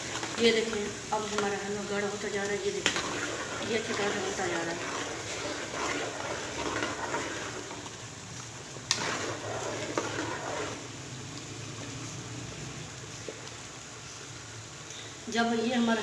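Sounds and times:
spoon stirring: 0.0 - 8.0, 8.9 - 10.9
thick food bubbling in pot: 0.0 - 15.3.

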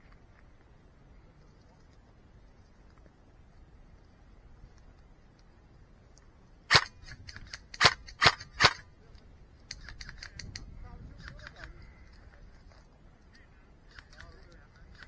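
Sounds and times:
airsoft gun shots: 6.7 - 8.8
faint clicks: 9.1 - 15.0.

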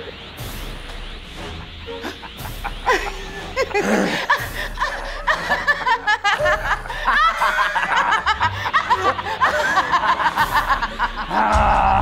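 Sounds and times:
music: 0.0 - 12.0
people cackling with laughter: 1.6 - 12.0.

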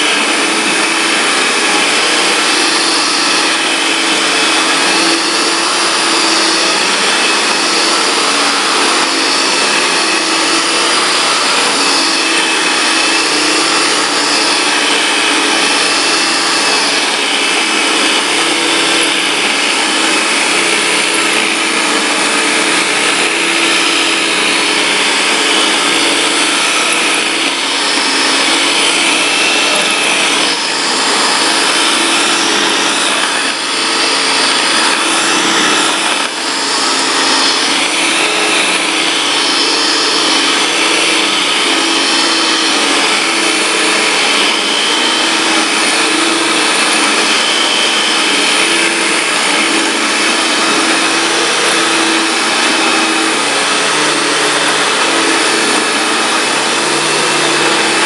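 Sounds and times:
upright vacuum cleaner running: 0.0 - 58.0.

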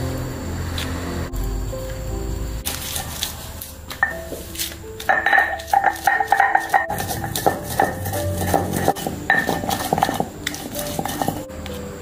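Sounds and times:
light instrumental music: 0.0 - 12.0
stone pestle knocking and grinding: 4.0 - 11.5.

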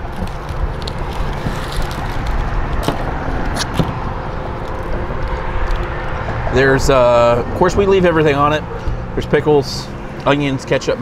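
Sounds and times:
paper wrappers crinkling: 0.0 - 6.2
outdoor background rumble: 0.0 - 11.0.

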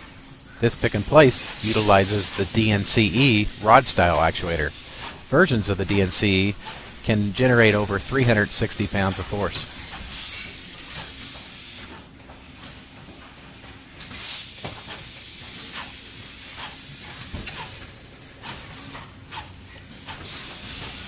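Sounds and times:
short pneumatic hiss: 14.1 - 17.8.

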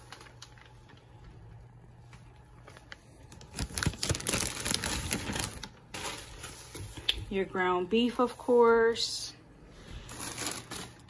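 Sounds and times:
plastic packaging crinkling: 0.0 - 7.1, 10.0 - 11.0.

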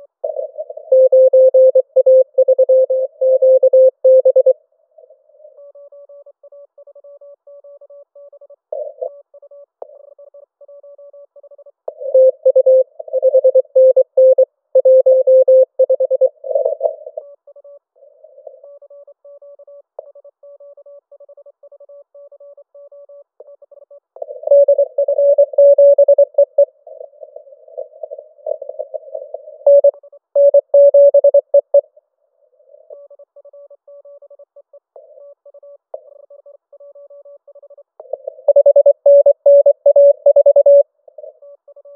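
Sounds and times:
faint morse code tones: 0.2 - 31.9, 32.5 - 41.9
fast morse code tones: 38.5 - 40.8.

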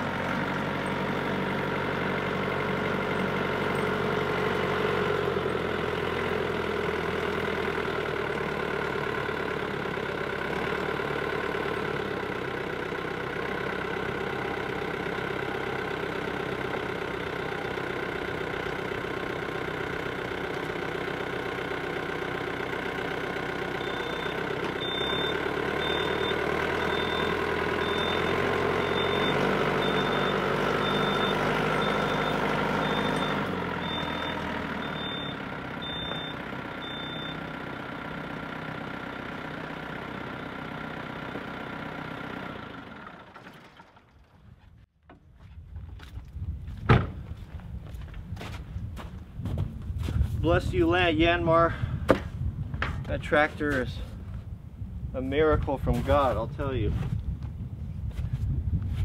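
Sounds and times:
tractor diesel engine running: 0.0 - 59.0
high beeps: 23.8 - 37.4.

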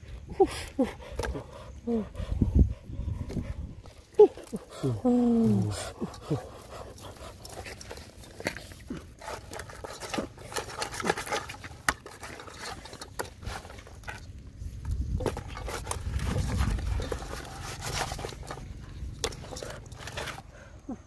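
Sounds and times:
corn husks rustling and crackling: 3.8 - 21.0
corn ears clicking against pot: 4.2 - 20.4.

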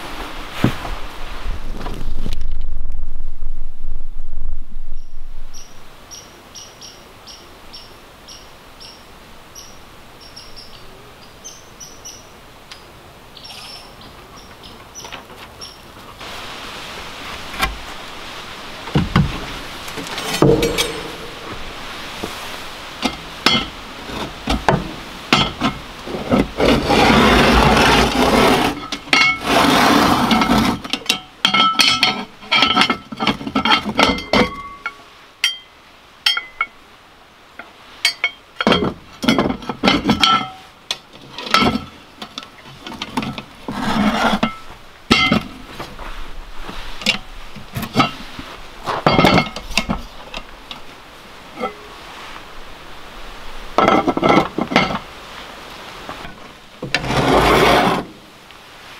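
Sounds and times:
metal knocks and clinks on pot: 20.2 - 21.6, 44.5 - 45.4.

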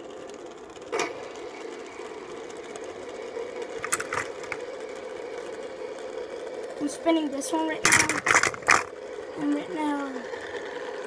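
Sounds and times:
fidget spinners whirring: 0.0 - 11.0
quick clicks: 3.8 - 4.6, 7.9 - 8.9.

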